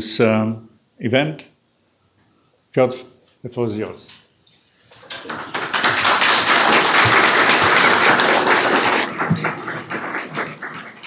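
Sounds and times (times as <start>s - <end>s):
audience applauding: 4.9s - 11.0s.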